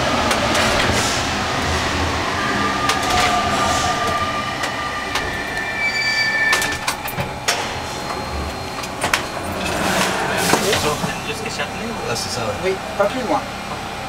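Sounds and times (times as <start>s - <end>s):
train running noise: 0.0s - 14.0s
high squealing tones: 1.4s - 10.4s.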